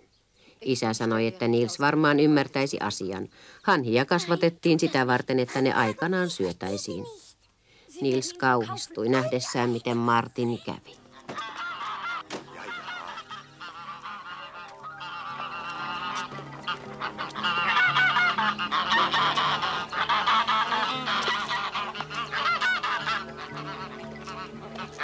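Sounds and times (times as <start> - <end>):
geese honking and cackling: 4.0 - 7.1, 8.3 - 25.0.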